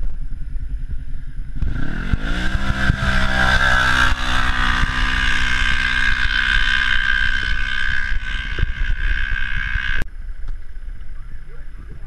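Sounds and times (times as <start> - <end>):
utility vehicle engine at high revs: 1.6 - 10.0.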